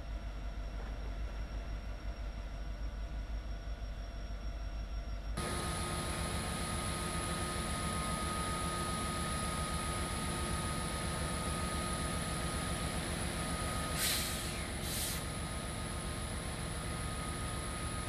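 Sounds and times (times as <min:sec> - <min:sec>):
diesel locomotive rumbling: 0:05.4 - 0:18.0
short hisses: 0:14.0 - 0:15.3.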